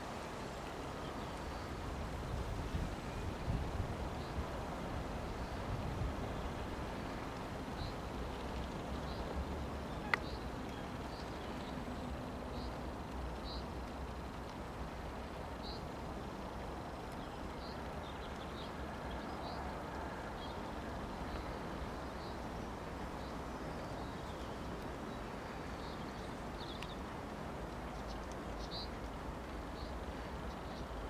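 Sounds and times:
outdoor rumble and hiss: 0:00.0 - 0:31.0
small birds chirping: 0:21.3 - 0:27.1, 0:27.7 - 0:31.0.

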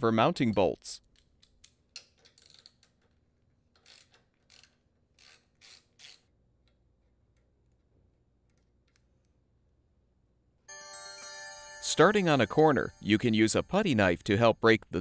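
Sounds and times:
socket wrench ratcheting: 0:01.2 - 0:06.8.

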